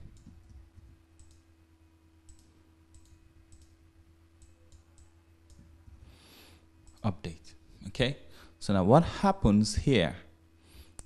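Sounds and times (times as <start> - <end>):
computer mouse clicks: 0.0 - 1.4, 2.2 - 3.8, 4.4 - 6.0
low steady hum: 0.0 - 11.0.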